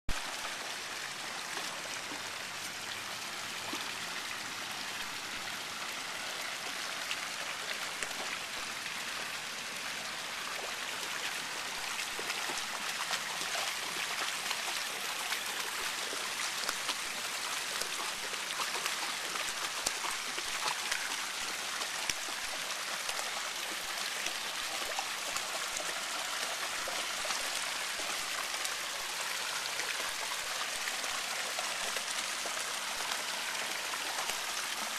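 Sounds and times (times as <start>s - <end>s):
shallow water flowing: 0.1s - 34.9s
paws splashing through water: 10.6s - 28.5s.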